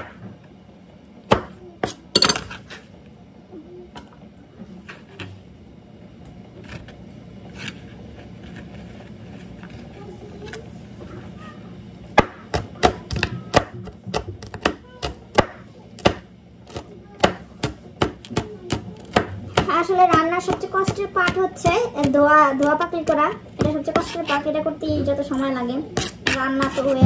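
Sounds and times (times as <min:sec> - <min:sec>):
knife chopping on cutting board: 0:12.2 - 0:24.4, 0:26.0 - 0:27.0.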